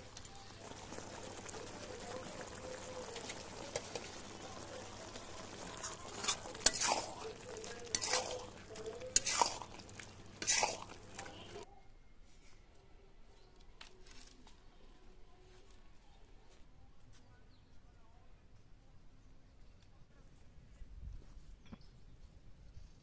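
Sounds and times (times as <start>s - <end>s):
curry sizzling: 0.0s - 11.7s
metal spatula scraping a pan: 5.2s - 11.6s.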